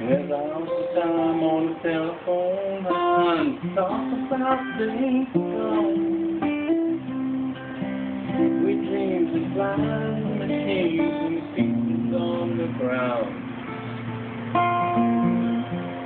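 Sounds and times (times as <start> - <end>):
fingerstyle acoustic guitar: 0.0 - 16.0.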